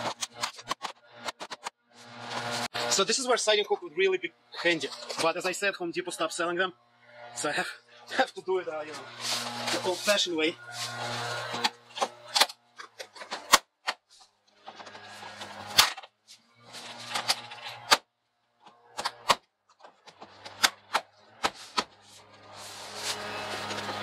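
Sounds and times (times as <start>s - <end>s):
siding rubbing and scraping: 0.0s - 3.8s, 4.5s - 5.7s, 6.9s - 24.0s
plastic siding clicks and snaps: 18.6s - 21.9s.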